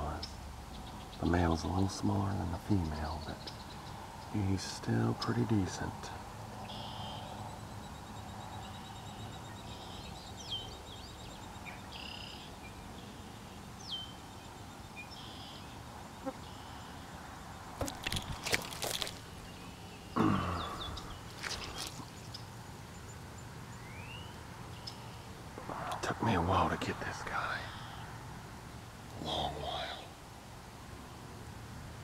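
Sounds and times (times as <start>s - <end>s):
birds calling: 0.0s - 32.0s
low background hum: 0.0s - 32.0s
handling thump and rustle: 17.8s - 19.4s.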